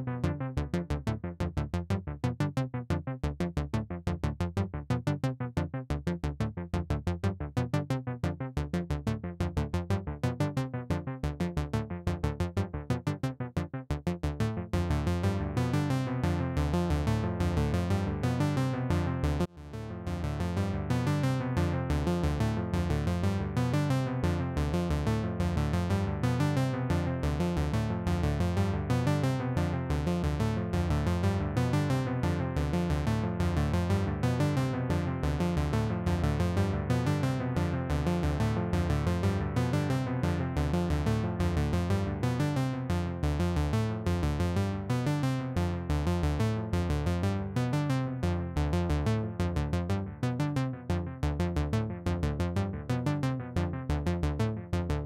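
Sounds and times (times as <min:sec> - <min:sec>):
synthesizer repeating low notes with delay: 0:00.0 - 0:45.0, 0:48.3 - 0:55.0.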